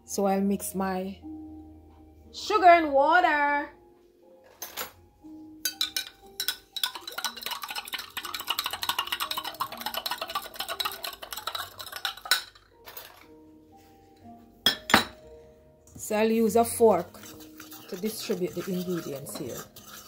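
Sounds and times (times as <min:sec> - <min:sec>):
spoon clinking against glass: 0:05.6 - 0:13.2, 0:14.6 - 0:15.2, 0:17.0 - 0:20.0.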